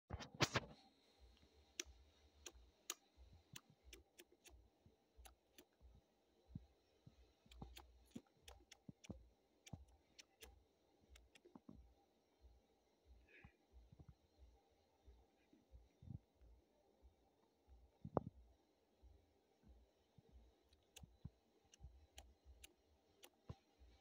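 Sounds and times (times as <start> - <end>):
faint irregular clicks: 0.1 - 12.0, 19.6 - 24.0.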